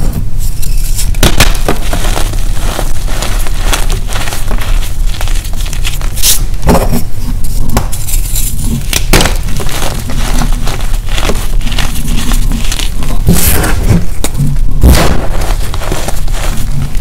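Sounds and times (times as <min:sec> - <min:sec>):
chalk crunching in hands: 0:07.5 - 0:13.9, 0:14.9 - 0:17.0.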